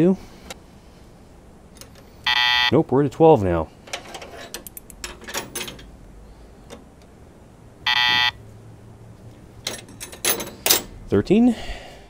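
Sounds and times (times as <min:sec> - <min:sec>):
electronic buzzer beep: 0:02.2 - 0:02.8, 0:07.8 - 0:08.4
hand tools clinking: 0:03.9 - 0:05.9, 0:09.6 - 0:11.0.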